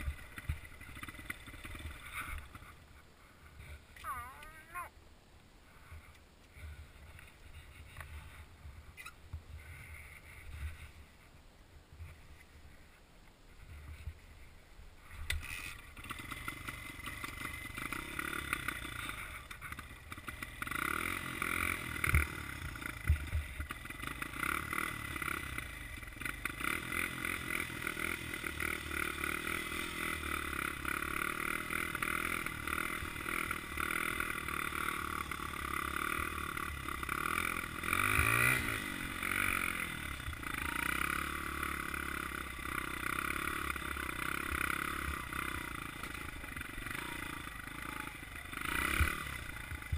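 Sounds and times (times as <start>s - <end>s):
dirt bike engine revving: 0.0s - 2.8s, 15.3s - 49.9s.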